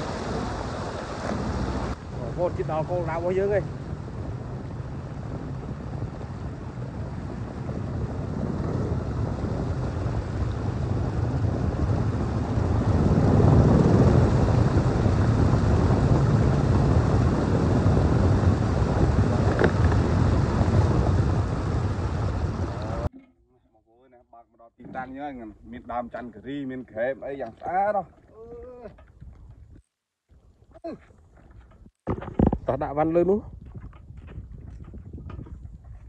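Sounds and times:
wind on microphone: 0.0 - 23.1, 24.8 - 36.0
boat engine running: 0.0 - 23.2.

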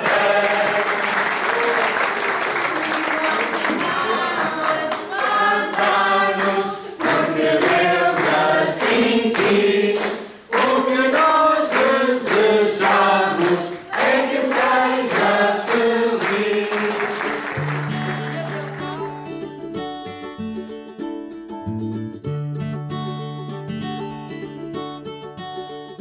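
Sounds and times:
group of people singing: 0.0 - 1.6, 3.2 - 17.6
hands clapping along: 0.0 - 19.4.

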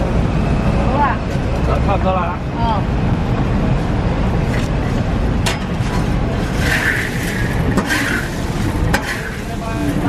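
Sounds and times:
sand rustling and scraping in wok: 5.8 - 10.0
sand hissing: 6.3 - 10.0.

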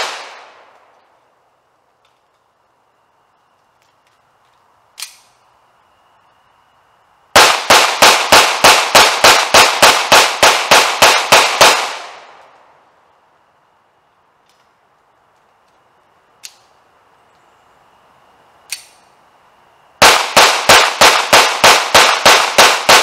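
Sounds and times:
sharp click: 5.0 - 5.4, 18.7 - 19.1
pistol shots echoing: 7.4 - 12.4, 20.0 - 23.0.

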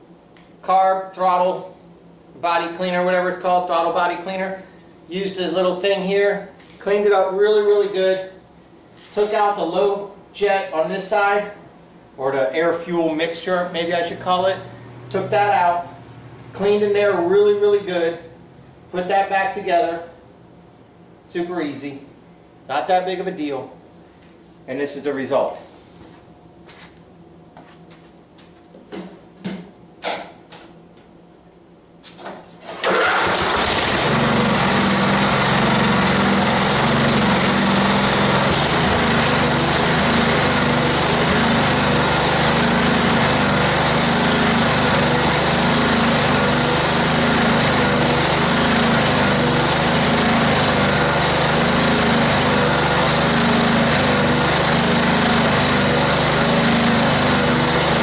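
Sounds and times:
mower engine starting and running: 32.5 - 58.0.

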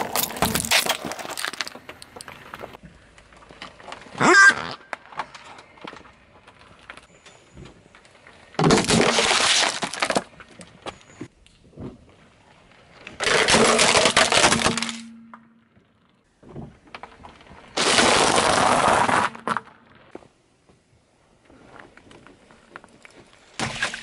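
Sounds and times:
objects crunching under car tyre: 0.0 - 24.0.

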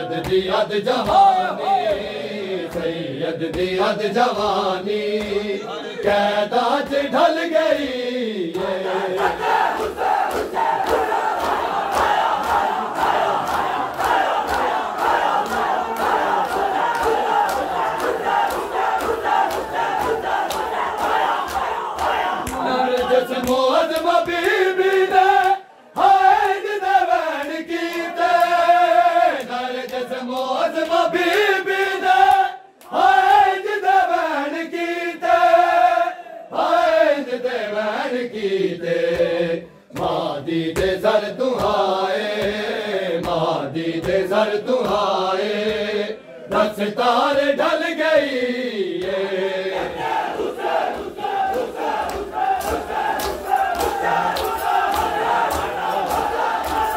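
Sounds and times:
men chanting in unison: 0.0 - 56.9
hands beating chests: 9.2 - 25.1, 50.0 - 56.9.

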